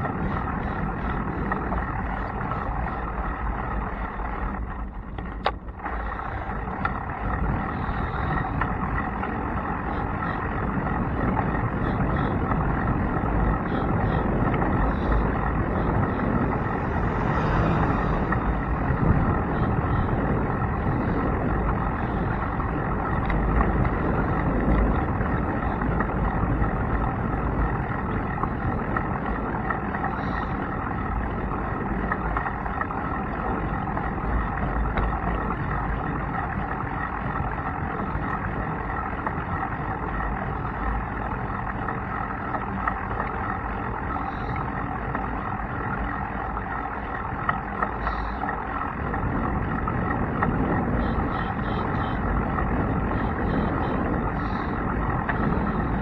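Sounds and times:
tyres rolling on pavement: 0:00.0 - 0:56.0
wind rushing over microphone: 0:00.0 - 0:56.0.

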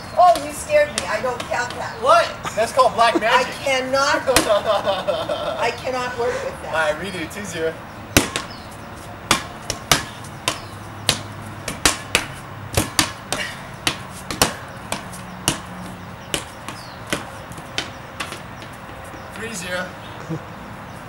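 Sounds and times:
ball bouncing on concrete: 0:00.2 - 0:02.3, 0:03.3 - 0:04.7, 0:08.1 - 0:19.6
ball slapped by hand: 0:09.3 - 0:13.2.

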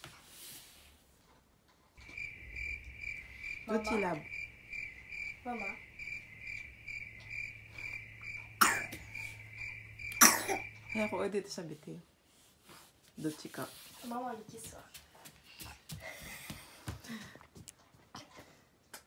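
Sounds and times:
high pulsing chirp: 0:02.0 - 0:11.3
low hum: 0:02.0 - 0:11.4.

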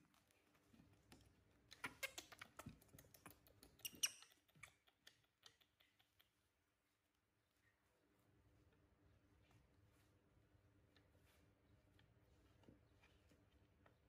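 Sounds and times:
faint rustling: 0:06.3 - 0:14.0.

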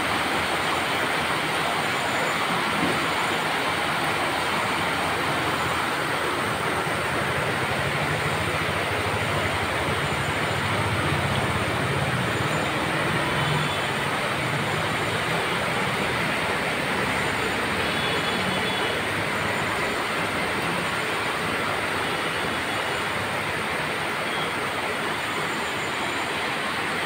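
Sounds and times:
steady rain falling: 0:00.0 - 0:27.0.

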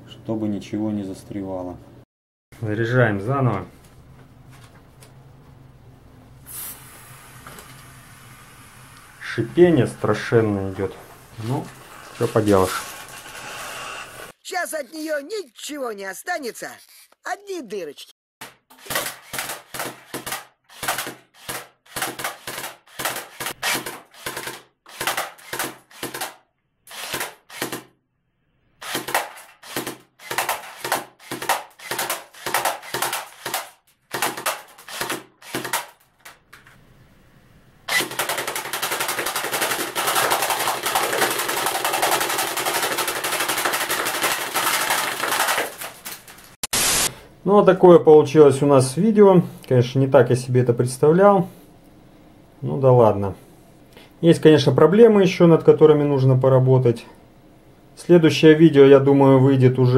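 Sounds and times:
gas hissing: 0:06.4 - 0:14.4, 0:46.7 - 0:47.1
air gun shots: 0:18.4 - 0:27.9, 0:28.8 - 0:36.0, 0:46.7 - 0:47.2.

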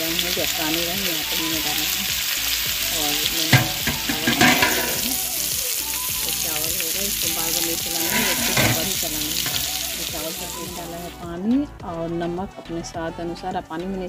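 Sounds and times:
potatoes sizzling in hot oil: 0:00.0 - 0:11.2
utensil knocking against pan: 0:03.3 - 0:05.2, 0:07.9 - 0:09.8.

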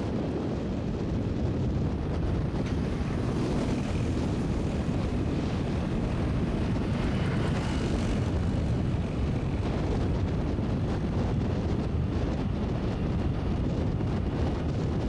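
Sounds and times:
wind buffeting microphone: 0:00.0 - 0:15.0
motorbike engine: 0:02.0 - 0:13.2.

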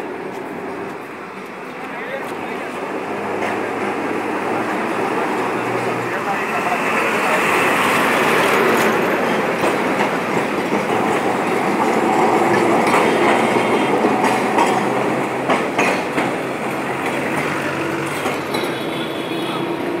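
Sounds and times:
bus passing: 0:00.0 - 0:20.0
street traffic: 0:00.0 - 0:20.0
tram wheels rumbling on track: 0:00.0 - 0:20.0.

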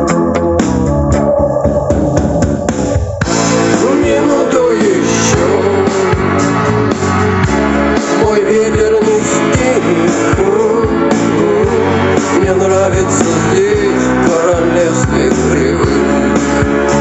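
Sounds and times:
instrumental rock music: 0:00.0 - 0:17.0.

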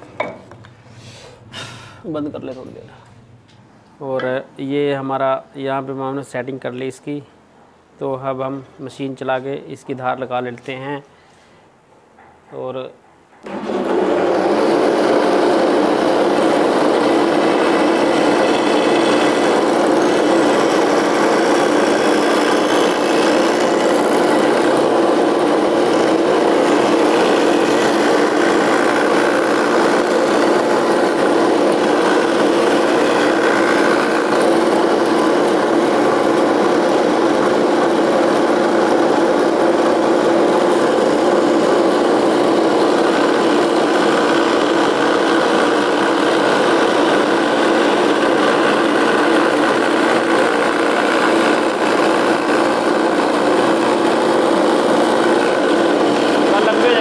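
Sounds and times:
grinding wheel grinding blade: 0:13.4 - 0:57.0
motor running: 0:13.4 - 0:57.0.

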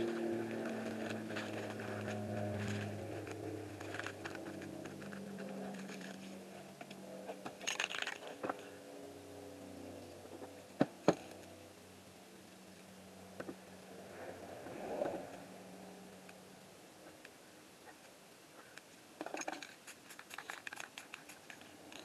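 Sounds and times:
low motor hum: 0:00.0 - 0:17.3.

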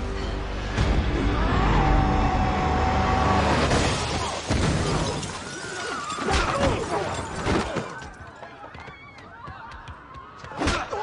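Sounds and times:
crashes and impacts: 0:03.4 - 0:08.0.

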